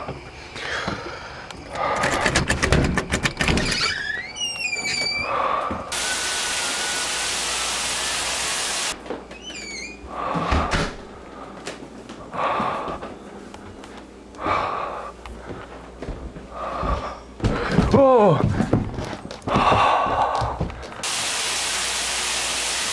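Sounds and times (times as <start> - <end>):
shower spray hissing: 5.9 - 9.0, 21.0 - 22.9.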